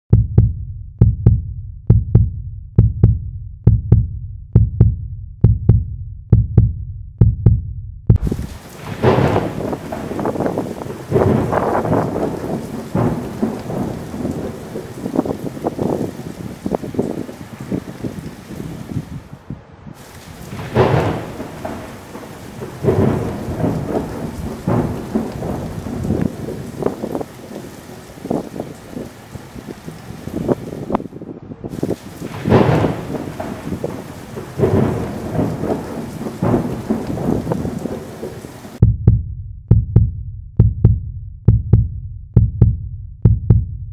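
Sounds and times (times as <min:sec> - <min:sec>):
heartbeat thumps: 0:00.1 - 0:10.1, 0:22.8 - 0:27.0, 0:38.8 - 0:43.9
thunder rumbling: 0:08.1 - 0:38.9
wind gusts on microphone: 0:08.2 - 0:38.8.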